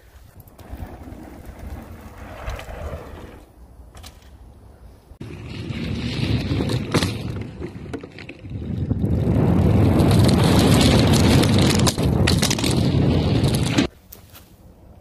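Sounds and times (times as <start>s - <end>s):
bike tyres rattling over wooden boardwalk: 0.0s - 4.5s, 5.2s - 13.9s
wind on microphone: 5.2s - 13.9s.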